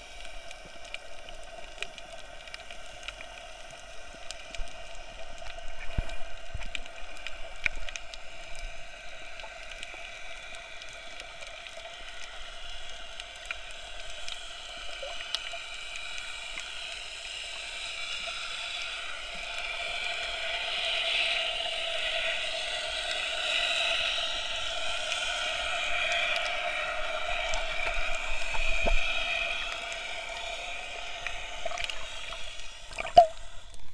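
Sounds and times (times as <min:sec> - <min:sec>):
faint clicks: 0:00.0 - 0:20.2
muffled watery hiss: 0:00.0 - 0:33.9.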